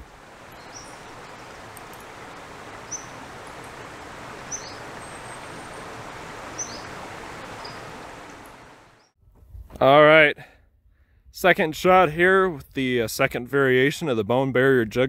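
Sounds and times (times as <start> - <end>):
bird chirping: 0.0 - 9.2
open field ambience: 0.0 - 15.0.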